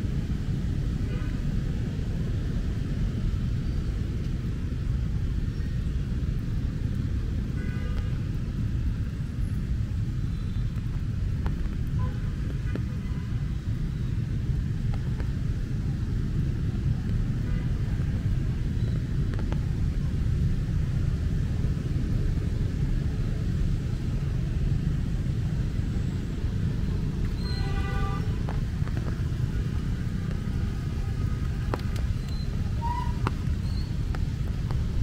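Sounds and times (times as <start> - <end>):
road traffic noise: 0.0 - 35.0
rain drumming on umbrella: 10.7 - 35.0.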